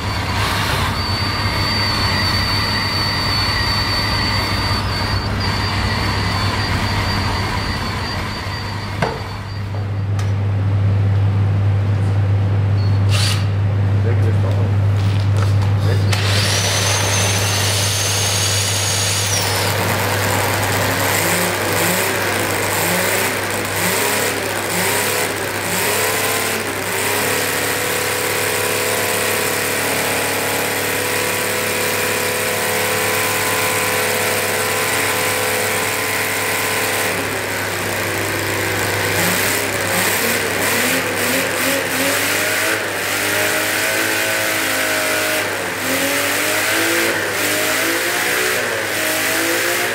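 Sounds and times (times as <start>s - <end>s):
cordless drill whine: 0.0s - 9.8s, 12.9s - 13.6s, 16.0s - 47.6s
model engine revving: 16.1s - 49.9s.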